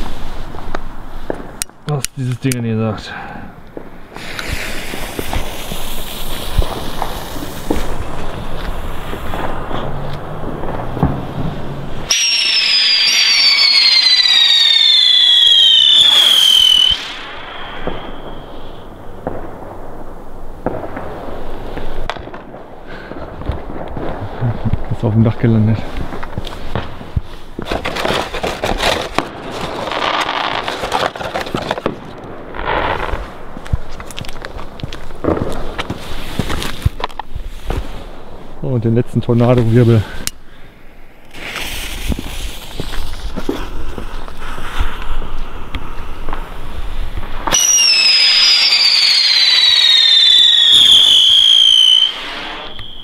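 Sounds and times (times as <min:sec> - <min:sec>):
fireworks hissing: 0:00.0 - 0:01.9, 0:03.3 - 0:25.0, 0:25.6 - 0:38.7, 0:39.4 - 0:53.0
fuse crackling: 0:03.6 - 0:53.0
spinning firework whistle: 0:12.0 - 0:19.2, 0:47.4 - 0:53.0.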